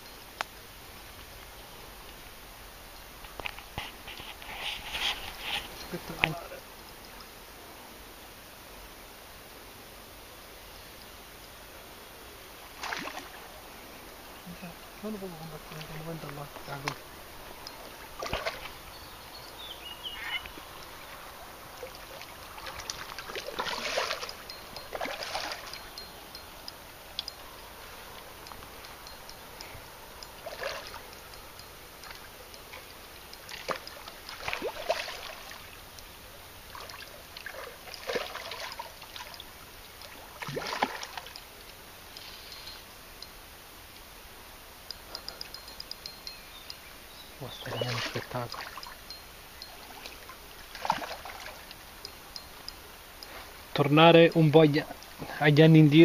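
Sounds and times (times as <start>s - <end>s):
fish splashing in water: 12.8s - 13.5s, 17.8s - 18.9s, 20.6s - 26.0s, 30.3s - 31.2s, 32.0s - 35.8s, 36.7s - 41.4s, 49.7s - 51.8s.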